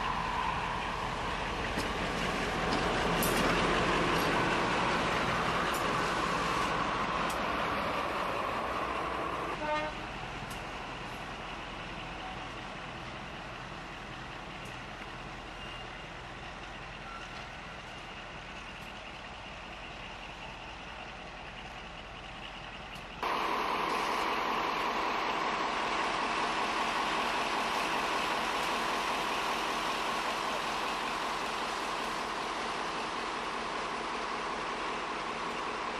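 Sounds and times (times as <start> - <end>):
locomotive diesel engine running: 0.0 - 35.9
locomotive horn toot: 9.5 - 10.1.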